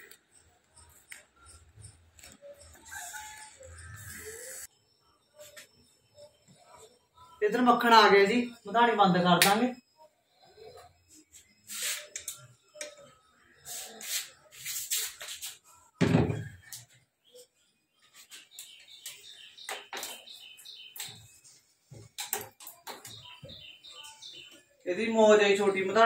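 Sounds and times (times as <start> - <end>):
birds chirping: 15.9 - 26.0.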